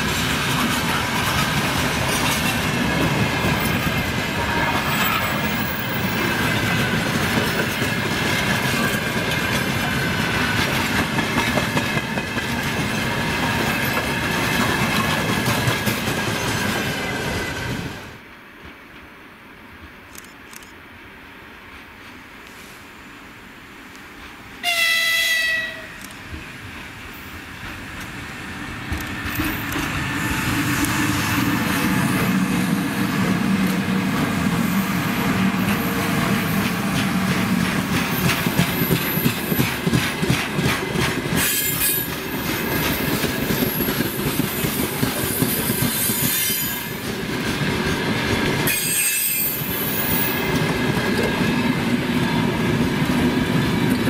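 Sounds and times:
train wheels clattering on rails: 0.0s - 19.2s, 26.0s - 54.0s
locomotive horn blast: 4.4s - 5.6s, 24.6s - 26.0s
high-pitched wheel squeals: 48.7s - 50.4s.

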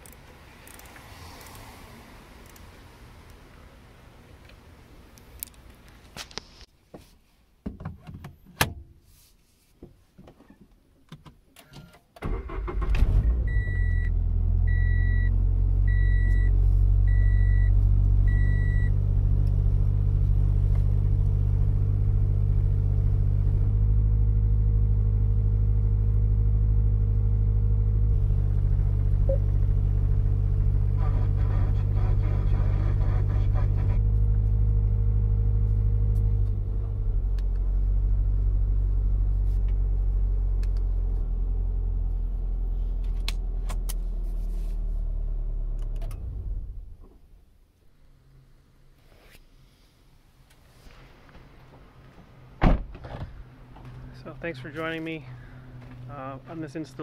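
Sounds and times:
car engine starting and idling: 12.1s - 48.9s, 50.4s - 57.0s.

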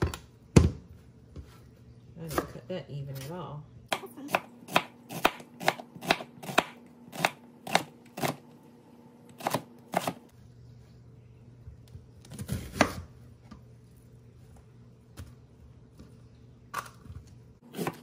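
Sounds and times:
knife chopping on cutting board: 3.9s - 8.4s, 9.4s - 10.2s.

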